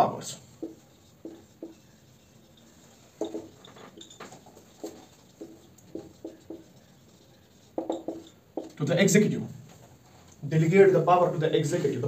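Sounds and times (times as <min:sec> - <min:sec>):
marker squeaking on whiteboard: 0:00.4 - 0:08.9.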